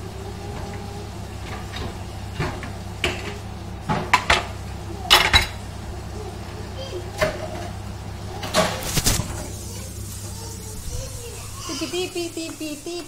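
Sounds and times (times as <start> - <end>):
steady low hum: 0.0 - 13.0
dishes clattering: 1.4 - 5.7.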